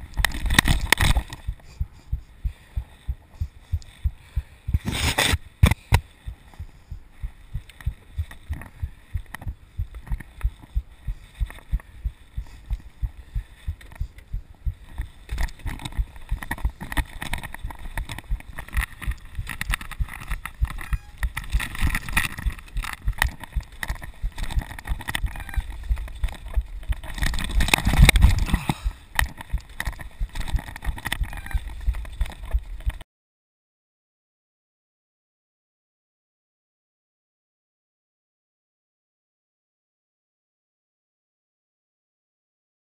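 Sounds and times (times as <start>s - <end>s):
bike tyres on rocky trail: 2.5s - 33.0s
steady thuds: 5.6s - 31.0s.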